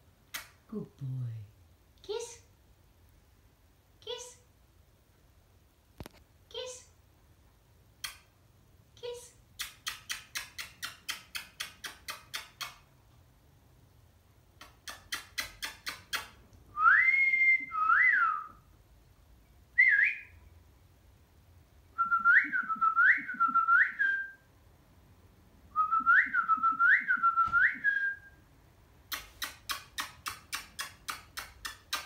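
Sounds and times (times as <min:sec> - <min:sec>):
bird kissing smacks: 0:00.3 - 0:00.6, 0:09.6 - 0:12.9, 0:14.6 - 0:16.4, 0:29.1 - 0:32.0.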